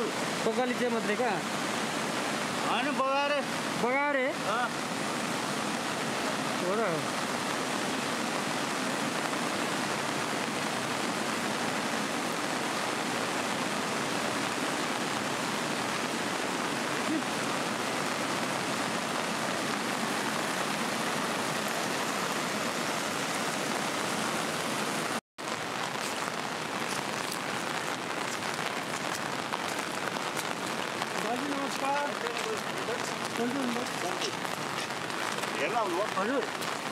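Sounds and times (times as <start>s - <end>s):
flooded river rushing: 0.0s - 36.9s
heavy rain: 0.0s - 36.9s
sharp raindrop hits: 25.4s - 36.9s.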